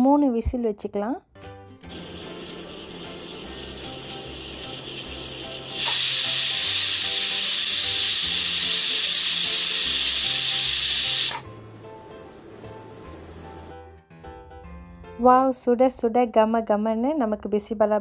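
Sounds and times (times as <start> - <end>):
pressure cooker whistle hissing: 1.9 - 11.5.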